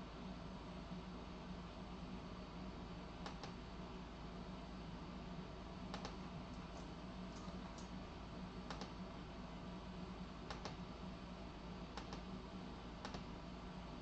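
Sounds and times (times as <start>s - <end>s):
low room hum: 0.0s - 14.0s
faint clicks: 5.9s - 8.0s, 8.7s - 9.0s, 10.5s - 10.8s, 12.0s - 12.2s, 13.0s - 13.3s.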